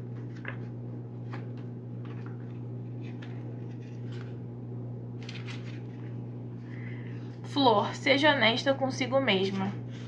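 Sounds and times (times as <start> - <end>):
paper pages rustling: 0.0 - 4.5, 5.2 - 6.3
low electrical hum: 0.0 - 10.0.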